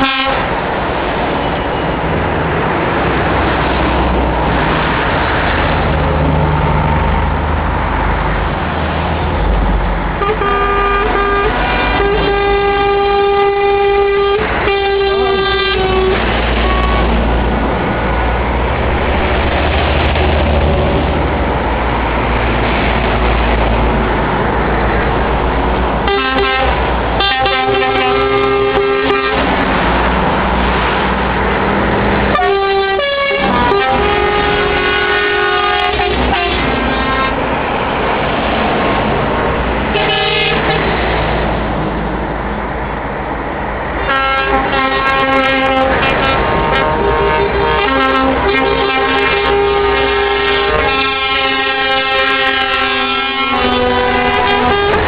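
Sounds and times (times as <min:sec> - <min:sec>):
truck horns blasting: 0:00.0 - 0:00.6, 0:10.1 - 0:17.5, 0:26.0 - 0:31.0, 0:32.1 - 0:37.7, 0:39.8 - 0:41.2, 0:44.0 - 0:55.0
truck diesel engines rumbling: 0:00.0 - 0:55.0.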